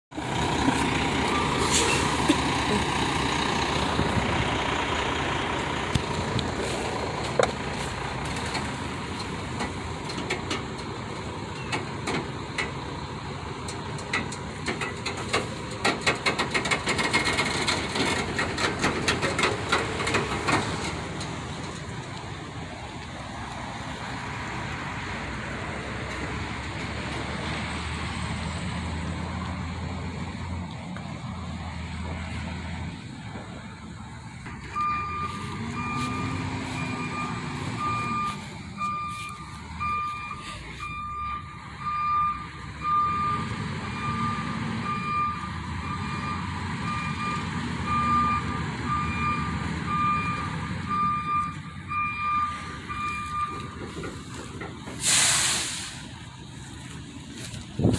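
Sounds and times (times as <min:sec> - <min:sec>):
diesel truck engine running: 0:00.1 - 0:57.9
rapid clicking and rattling: 0:13.9 - 0:21.8.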